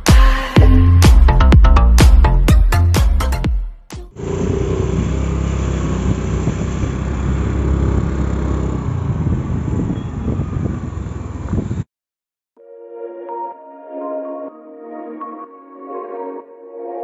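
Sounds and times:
motorbike engine running: 4.1s - 11.8s
road noise: 4.1s - 11.9s
electronic intro music: 12.6s - 17.0s.

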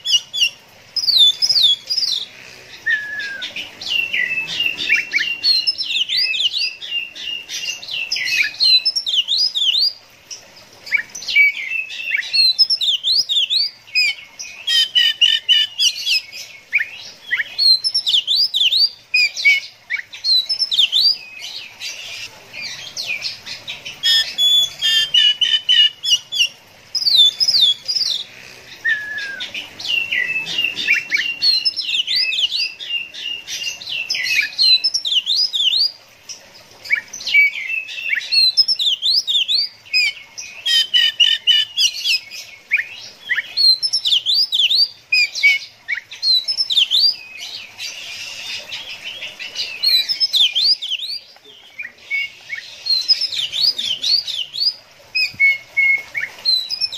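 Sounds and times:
bird singing whistled trills: 2.8s - 7.4s, 28.8s - 36.0s, 36.9s - 47.4s, 49.7s - 56.9s.

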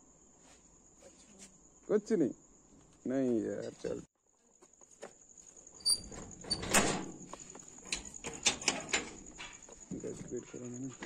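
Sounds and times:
metal gate clicking and rattling: 5.8s - 7.2s, 7.8s - 9.6s
metal clacking on metal: 7.8s - 9.6s.

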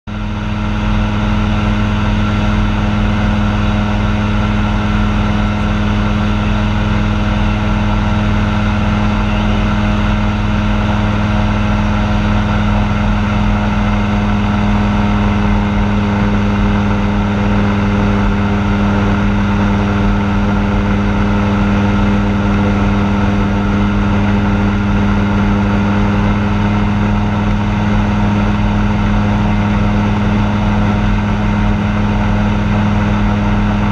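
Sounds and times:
aircraft engine drone in cockpit: 0.1s - 33.9s.

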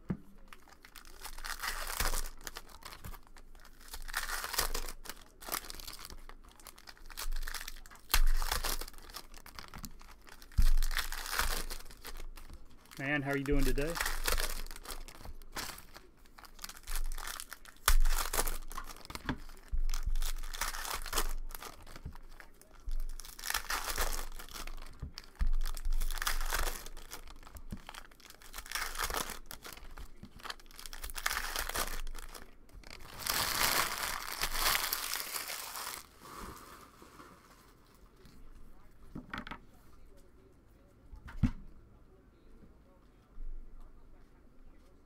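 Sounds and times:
foil wrapper tearing and crinkling: 0.5s - 36.2s.

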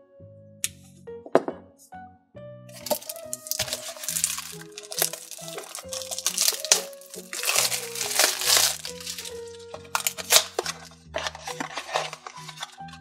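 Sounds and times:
light background music: 0.0s - 13.0s
cardboard box crinkling and scraping: 2.8s - 13.0s.

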